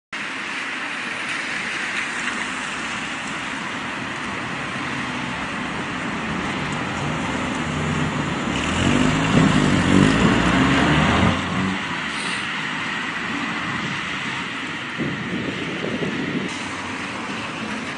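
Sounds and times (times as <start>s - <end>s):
street and wind noise: 0.1s - 17.9s
vehicle engine passing: 4.2s - 17.9s.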